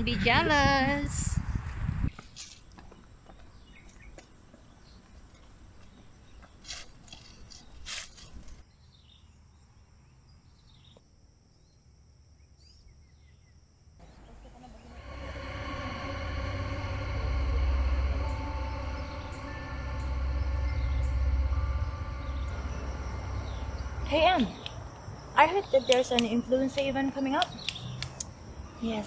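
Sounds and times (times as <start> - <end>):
low droning tone: 14.0 - 27.0.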